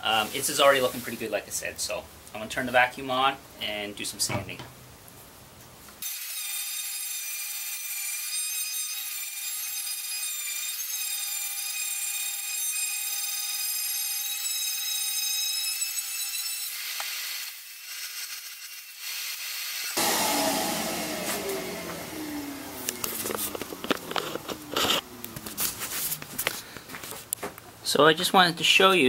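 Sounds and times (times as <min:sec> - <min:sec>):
faint hiss: 0:00.0 - 0:06.0
detail sander whining: 0:20.0 - 0:26.6.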